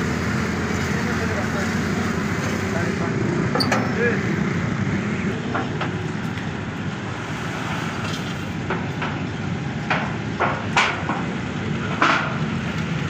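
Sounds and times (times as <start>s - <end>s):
roasting machine motor running: 0.0s - 9.0s.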